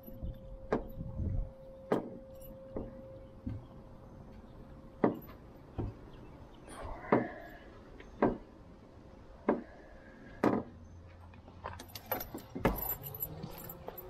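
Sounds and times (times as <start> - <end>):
metallic jingling: 11.7 - 14.0.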